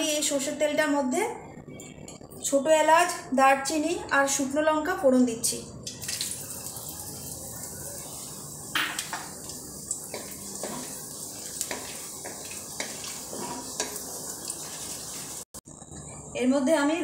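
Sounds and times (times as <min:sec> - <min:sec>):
spices sizzling in hot oil: 0:05.8 - 0:15.6
spatula scraping and knocking pan: 0:08.8 - 0:15.4.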